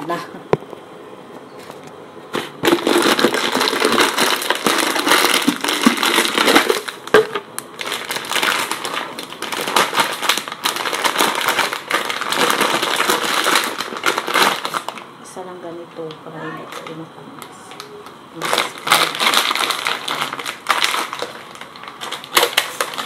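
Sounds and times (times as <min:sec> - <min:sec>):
plastic bag crinkling: 0:01.7 - 0:15.1, 0:15.9 - 0:23.0.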